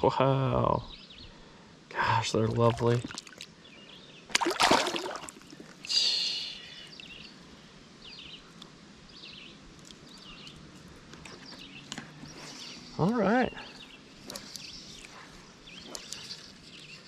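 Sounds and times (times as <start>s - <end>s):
water splashing: 2.4s - 3.5s, 4.3s - 5.9s
faint bird chirps: 5.9s - 7.4s, 11.2s - 17.0s.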